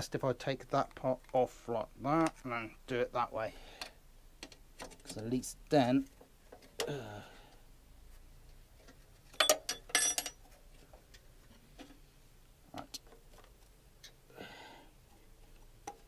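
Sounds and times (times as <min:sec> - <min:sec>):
metal tools clinking: 0:09.4 - 0:10.4.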